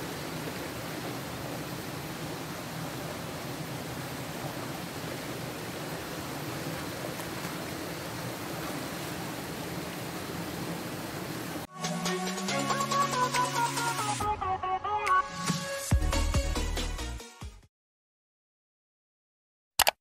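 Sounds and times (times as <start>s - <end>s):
churned water rushing: 0.0s - 14.0s.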